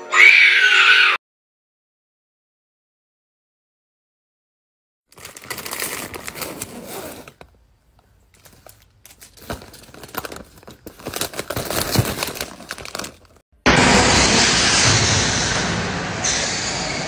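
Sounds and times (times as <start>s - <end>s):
plastic wrapper crinkling and tearing: 5.1s - 7.6s, 8.3s - 13.4s
loud steady noise: 13.6s - 17.0s.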